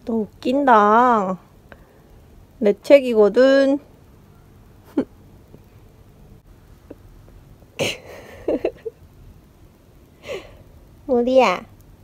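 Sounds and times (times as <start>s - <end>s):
woman laughing breathily: 7.8s - 9.0s, 10.2s - 10.6s.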